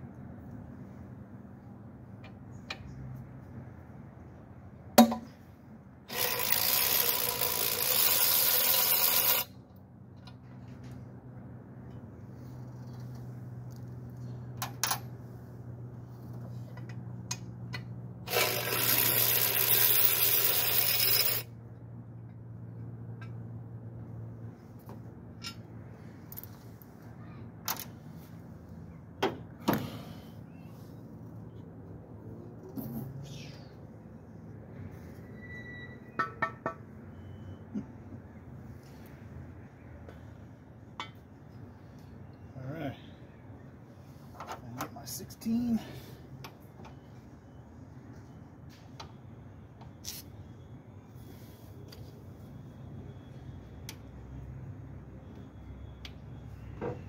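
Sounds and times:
cordless power driver running: 6.1 - 9.5, 18.3 - 21.4.

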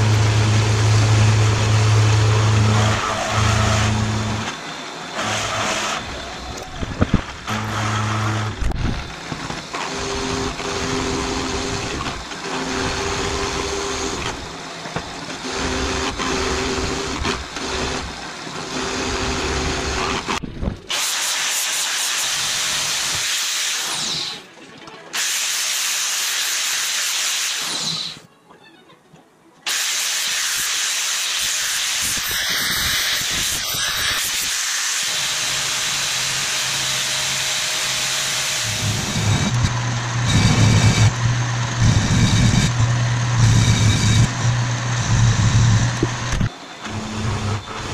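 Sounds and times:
drill press boring steel: 0.0 - 24.5, 25.1 - 28.2, 29.7 - 47.9.

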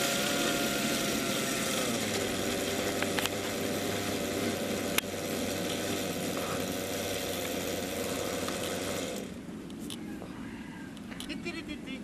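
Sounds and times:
model helicopter engine and rotor: 0.0 - 9.4.

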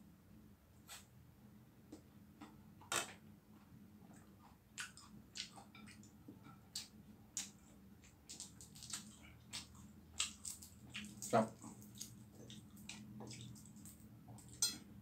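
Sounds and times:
eggshell clicking and crackling: 6.7 - 14.7.

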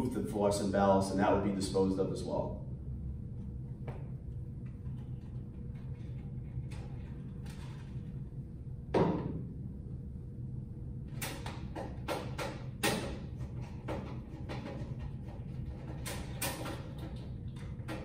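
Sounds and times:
low room hum: 0.0 - 18.0
tools clicking on sheet metal: 11.2 - 18.0.

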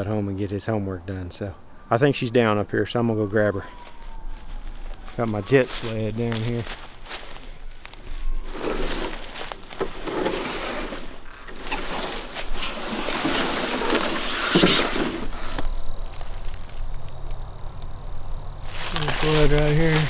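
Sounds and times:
footsteps crunching through dry leaves: 3.4 - 17.2, 18.6 - 20.0.

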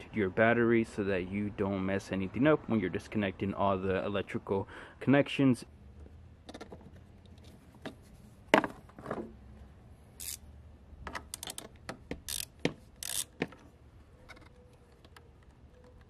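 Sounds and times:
wrench clicking on metal clamp: 10.2 - 10.4, 11.1 - 13.5.

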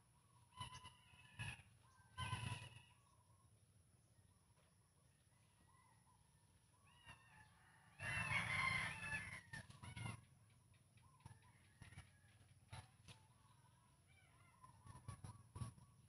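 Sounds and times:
rooster crowing: 6.9 - 10.2
small birds chirping: 12.7 - 16.0.

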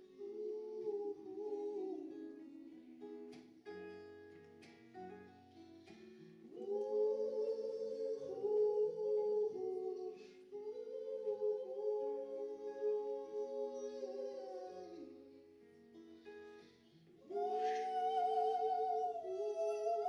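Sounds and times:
plucked acoustic guitar: 0.0 - 20.0
woman singing: 17.3 - 20.0.

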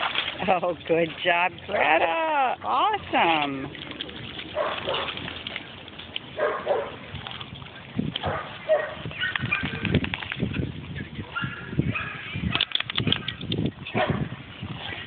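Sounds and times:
quick clicks: 12.5 - 13.7.

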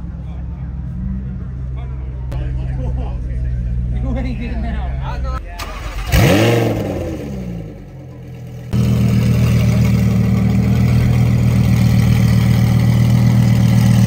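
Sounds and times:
car engine idling: 0.0 - 14.0
engine revving: 5.6 - 14.0.

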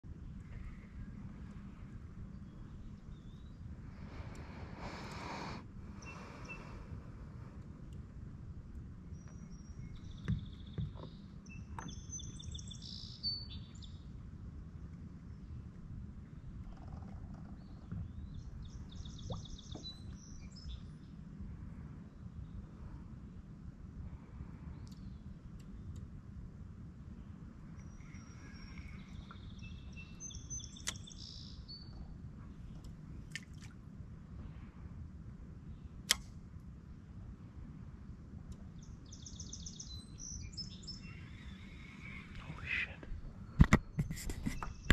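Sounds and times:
low background rumble: 0.0 - 44.9
songbird singing: 0.3 - 8.0, 8.7 - 14.2, 15.1 - 21.3, 24.7 - 26.2, 27.1 - 33.4, 38.5 - 44.9.

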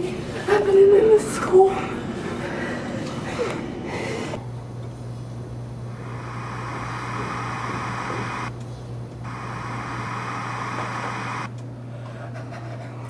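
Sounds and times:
static hiss: 4.4 - 8.6, 9.2 - 11.6
low hum: 4.4 - 11.6.

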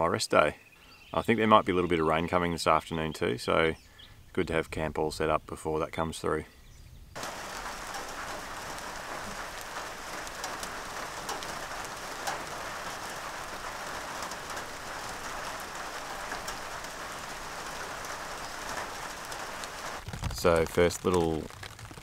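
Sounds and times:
steady rain falling: 7.2 - 22.0.

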